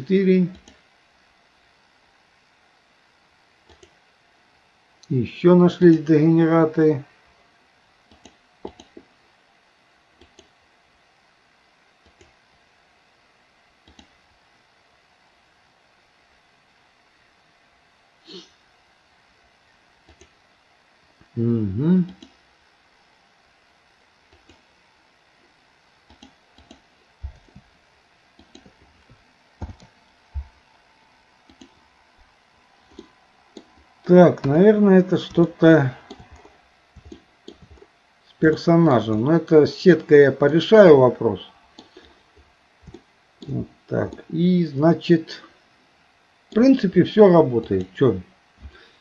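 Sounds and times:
computer mouse clicks: 0.5s - 0.8s, 3.6s - 4.0s, 8.1s - 9.1s, 10.2s - 10.6s, 12.0s - 12.4s, 13.8s - 14.2s, 20.0s - 20.4s, 22.1s - 22.4s, 24.3s - 24.6s, 26.0s - 27.6s, 28.4s - 30.5s, 31.5s - 31.8s, 32.8s - 33.8s, 36.1s - 37.9s, 42.8s - 44.3s.

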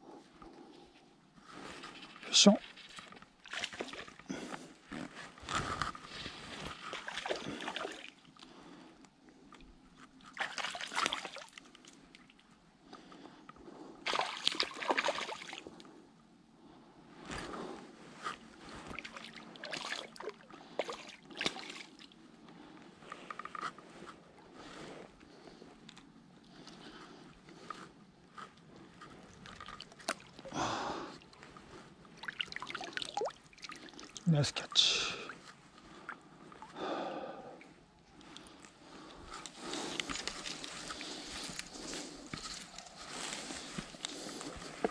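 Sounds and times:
water sloshing and splashing: 2.0s - 4.4s, 6.1s - 8.4s, 10.2s - 12.5s, 14.0s - 15.8s, 18.7s - 22.2s, 29.1s - 30.6s, 31.2s - 36.8s, 38.2s - 44.9s
river water splashing: 10.3s - 11.6s, 14.0s - 15.6s, 18.9s - 22.1s
small drips and clicks: 28.6s - 30.5s.

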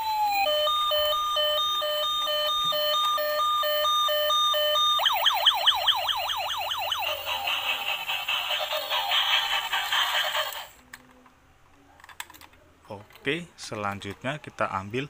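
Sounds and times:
toy electronic siren: 0.0s - 10.5s.

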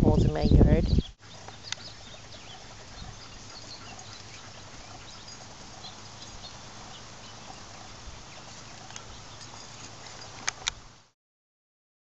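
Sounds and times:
steady outdoor hiss: 1.0s - 11.2s
dog panting softly: 1.4s - 6.0s.

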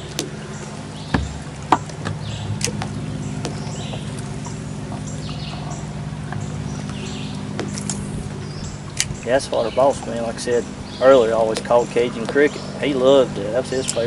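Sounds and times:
low hum: 0.0s - 14.0s
sharp knocks: 1.1s - 2.8s.

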